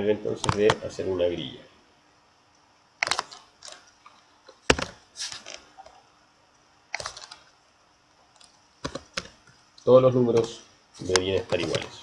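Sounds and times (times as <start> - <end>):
keyboard keystrokes: 0.4 - 0.8, 7.0 - 7.4.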